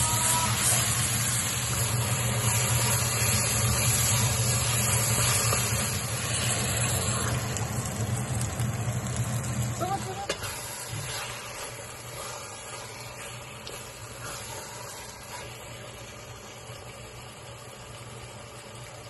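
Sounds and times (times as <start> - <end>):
food sizzling in a pot: 0.0 - 19.0
wooden spatula stirring: 0.5 - 7.1, 10.1 - 16.5.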